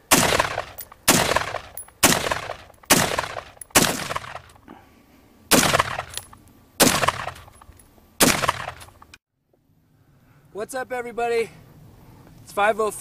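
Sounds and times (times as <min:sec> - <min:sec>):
rifle shots echoing: 0:00.0 - 0:04.6, 0:05.5 - 0:07.6, 0:08.2 - 0:09.0.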